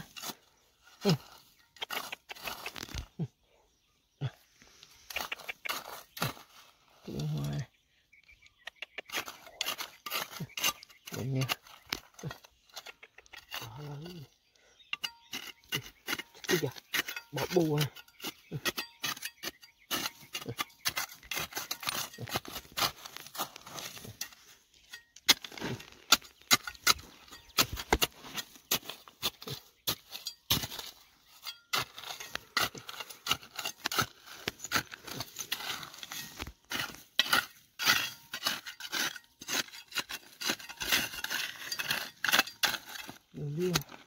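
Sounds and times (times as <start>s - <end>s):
metal tool clinking on stones: 14.9s - 28.0s, 28.7s - 34.1s, 34.7s - 44.0s.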